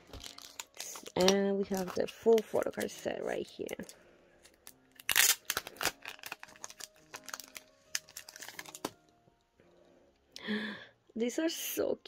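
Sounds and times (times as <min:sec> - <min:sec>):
packaging crinkling and rustling: 0:00.0 - 0:09.0
soft background music: 0:00.0 - 0:12.0.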